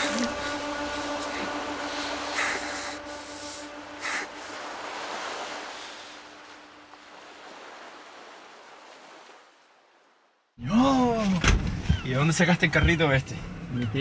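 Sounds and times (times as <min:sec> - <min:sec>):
faint steady hum: 0:00.0 - 0:07.1
sea waves washing: 0:00.0 - 0:10.1.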